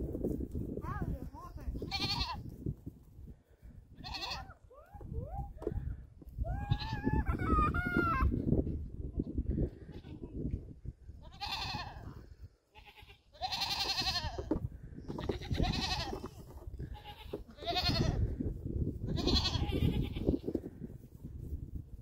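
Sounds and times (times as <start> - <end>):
goat kids bleating: 1.7 - 2.5, 4.0 - 4.7, 6.5 - 8.3, 9.6 - 10.4, 11.2 - 18.4, 19.0 - 20.7.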